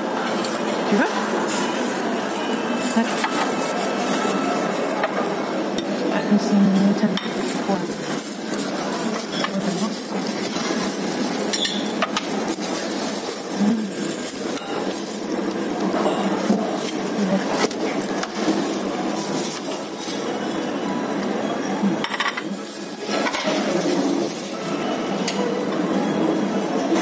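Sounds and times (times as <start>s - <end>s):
dining room background noise: 0.0s - 27.0s
cutlery and dishes clinking: 6.8s - 12.9s, 22.0s - 26.1s.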